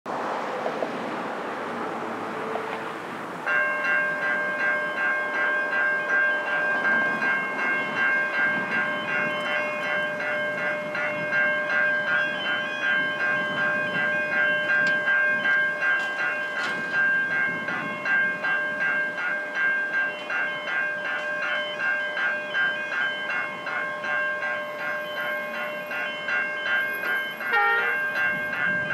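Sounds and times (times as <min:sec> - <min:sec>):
car passing: 0:00.1 - 0:03.6
level crossing warning bells: 0:03.3 - 0:28.9.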